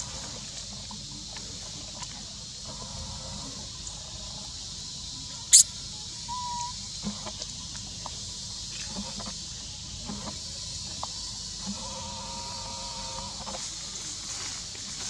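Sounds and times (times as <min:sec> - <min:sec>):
steady high hiss: 0:03.4 - 0:07.0
whistle-like call: 0:06.3 - 0:06.8.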